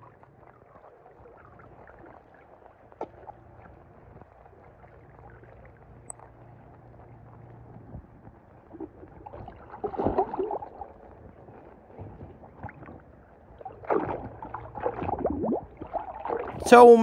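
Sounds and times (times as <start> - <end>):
pool water splashing: 12.4 - 17.0.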